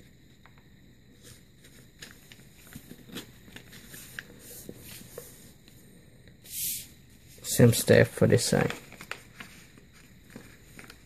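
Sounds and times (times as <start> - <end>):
paper rustling and crinkling: 1.1 - 5.4, 8.2 - 11.0.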